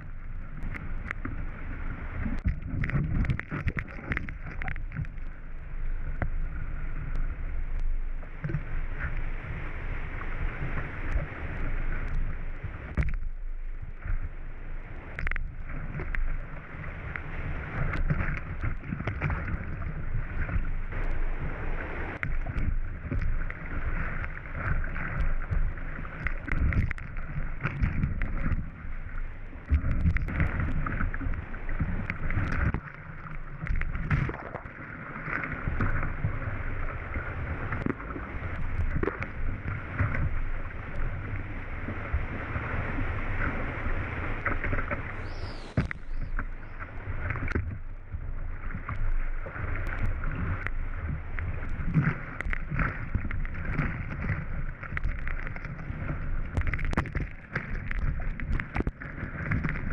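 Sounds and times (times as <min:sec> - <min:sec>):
paddle strokes and splashes: 0:00.0 - 0:59.9
wind buffeting camera: 0:35.6 - 0:59.9.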